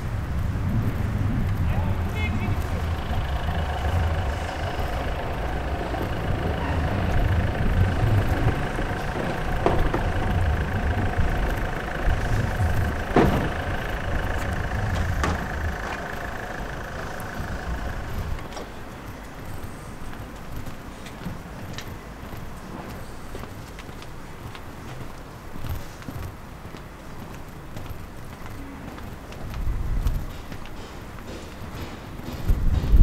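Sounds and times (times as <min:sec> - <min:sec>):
engine running with whine: 0:00.0 - 0:20.6
sharp knocks: 0:02.6 - 0:18.2.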